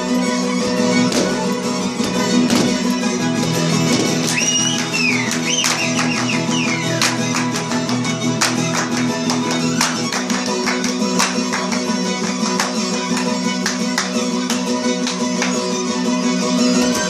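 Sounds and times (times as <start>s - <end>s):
fiddle folk dance music: 0.0s - 17.0s.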